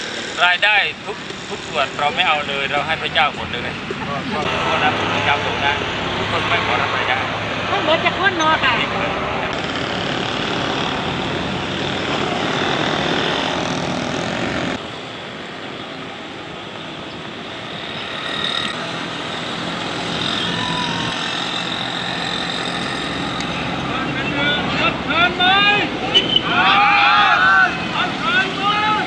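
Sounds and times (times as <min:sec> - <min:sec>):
outdoor street noise: 0:00.0 - 0:29.0.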